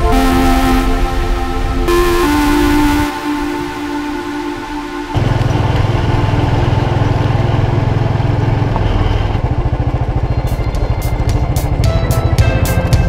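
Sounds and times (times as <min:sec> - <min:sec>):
music with sharp beat: 0:00.0 - 0:05.2, 0:10.4 - 0:13.0.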